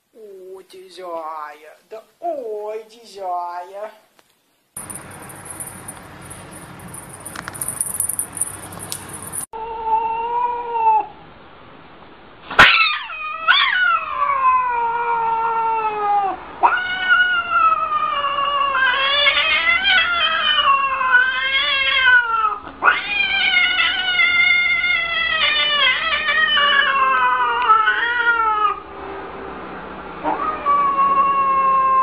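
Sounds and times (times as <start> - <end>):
cat meowing and yowling: 9.6 - 11.1, 12.6 - 28.8, 30.3 - 32.0.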